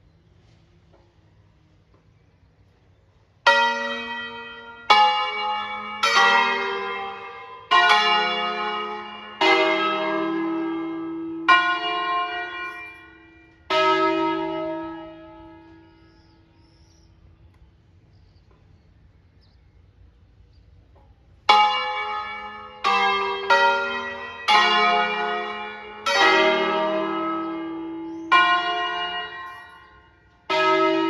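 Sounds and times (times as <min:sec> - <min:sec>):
church bells ringing: 0:03.4 - 0:17.3, 0:21.3 - 0:31.0.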